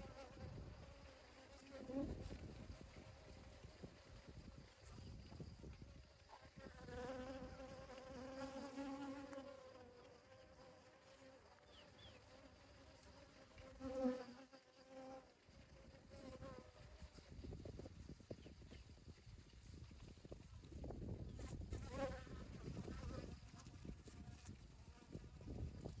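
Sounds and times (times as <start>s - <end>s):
bee buzzing: 0.0s - 5.0s, 6.3s - 17.3s, 21.4s - 25.6s.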